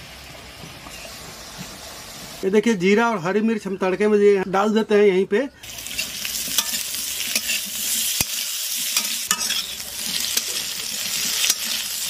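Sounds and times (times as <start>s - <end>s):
potatoes sizzling in pan: 5.6s - 12.0s
metal spatula scraping a pan: 5.8s - 12.0s.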